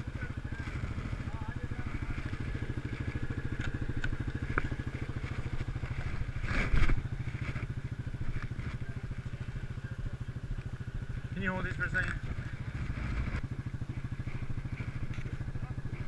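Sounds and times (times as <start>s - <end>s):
quad engine idling: 0.0s - 16.0s.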